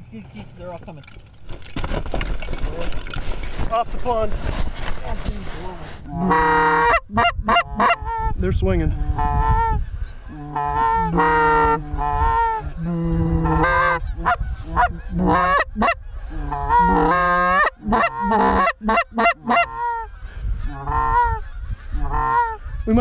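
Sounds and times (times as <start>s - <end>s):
geese honking and clucking: 5.1s - 23.0s.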